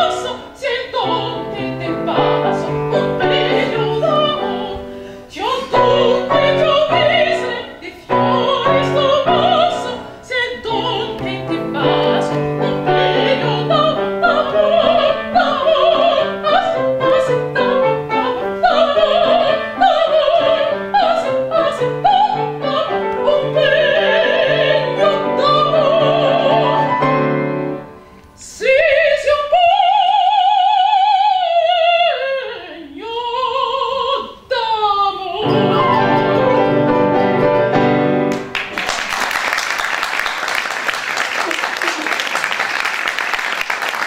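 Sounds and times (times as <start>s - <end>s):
woman singing opera: 0.0s - 27.1s, 28.4s - 36.8s
piano accompaniment: 0.0s - 28.4s, 35.4s - 39.0s
applause: 38.3s - 44.0s.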